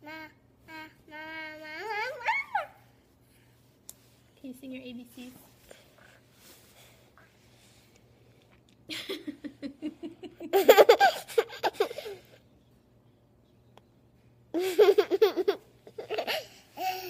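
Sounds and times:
toddler giggling and laughing: 8.9 - 12.4, 14.5 - 17.0.

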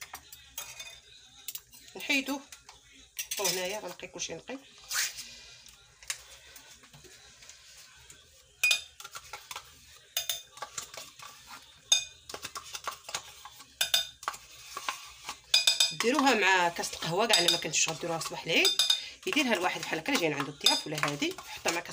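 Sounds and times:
spoon clinking on glass bowl: 8.6 - 9.1, 10.1 - 10.9, 11.9 - 12.4, 13.8 - 14.3, 15.5 - 21.9
metal spoon scraping pouch: 19.3 - 21.9.

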